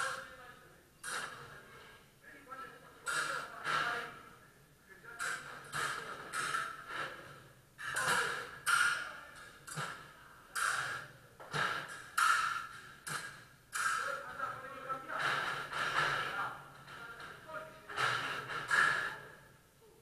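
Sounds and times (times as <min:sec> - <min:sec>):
sharp fencing blade hits: 0:10.6 - 0:14.1.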